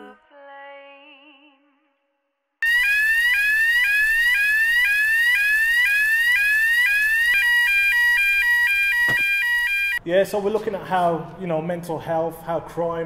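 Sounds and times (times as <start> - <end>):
electronic alarm siren: 2.6 - 10.0.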